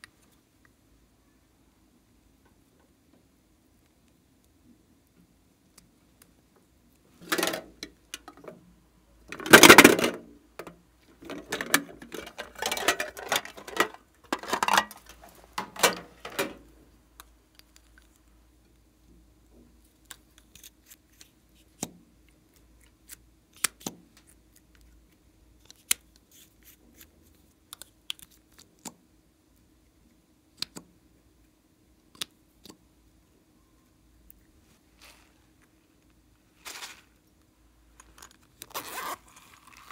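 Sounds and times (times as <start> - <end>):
plastic containers opened: 7.2 - 8.6, 9.3 - 16.7.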